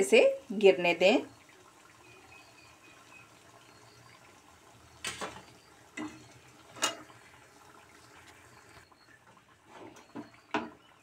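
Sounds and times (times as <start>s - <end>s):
hot oil sizzling faintly: 0.0s - 11.0s.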